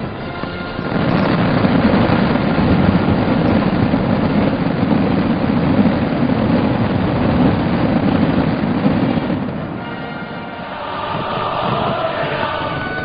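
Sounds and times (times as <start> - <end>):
fireworks bursting with crackle: 0.0 - 13.0.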